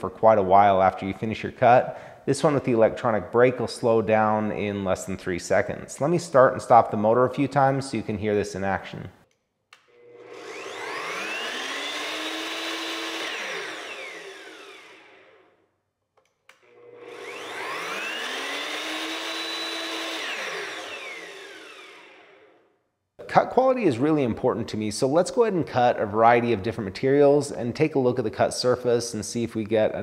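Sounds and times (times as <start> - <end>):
chop saw motor whine: 9.8 - 15.6, 16.5 - 22.6.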